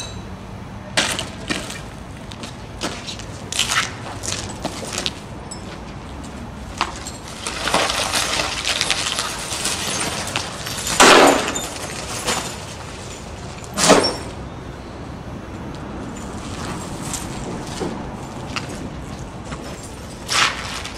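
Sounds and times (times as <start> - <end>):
glass crashes: 7.0 - 14.3
crazed glass crunching: 7.1 - 13.3.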